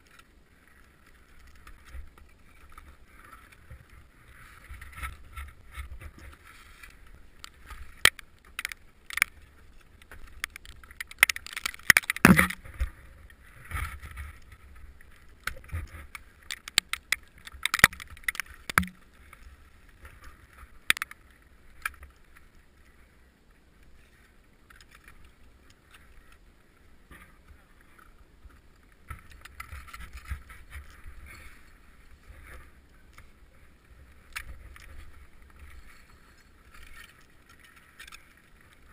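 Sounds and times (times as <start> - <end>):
ice axes striking and scraping: 10.4 - 12.6.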